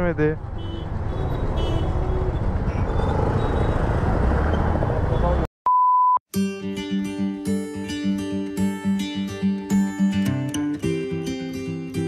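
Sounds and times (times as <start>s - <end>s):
city street traffic: 0.0s - 5.5s
high beep: 5.7s - 6.2s
strummed acoustic guitar music: 6.3s - 12.0s.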